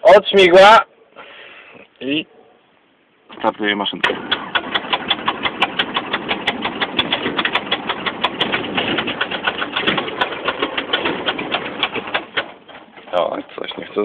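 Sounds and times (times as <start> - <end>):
aircraft engine cranking: 3.4 - 14.0.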